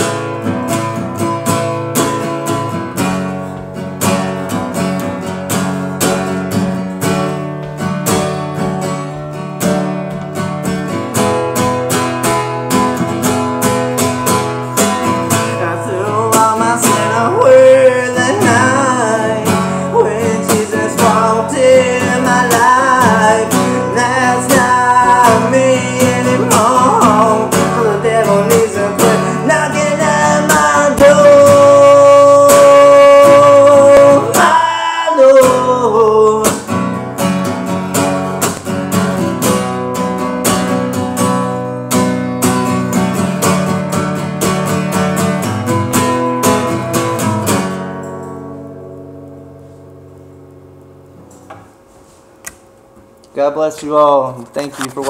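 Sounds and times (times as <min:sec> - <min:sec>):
acoustic guitar strumming: 0:00.0 - 0:55.0
man singing: 0:15.1 - 0:37.0.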